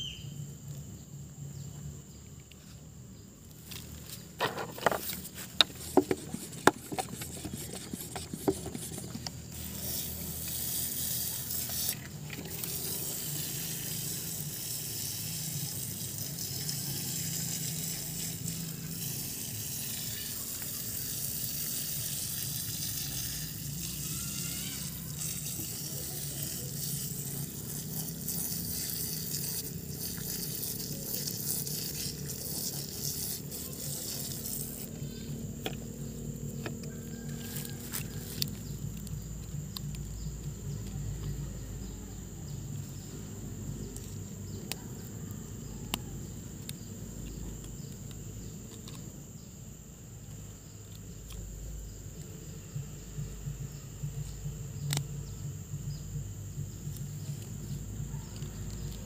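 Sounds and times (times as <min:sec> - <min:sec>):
pressure sprayer jetting water: 0:04.4 - 0:35.0, 0:37.1 - 0:38.6.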